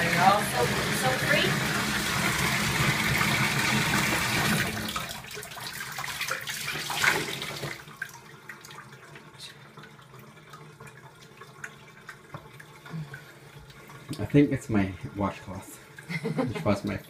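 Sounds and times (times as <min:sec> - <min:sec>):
faucet pouring into bathtub: 0:00.0 - 0:17.0
faint water drips: 0:07.8 - 0:17.0.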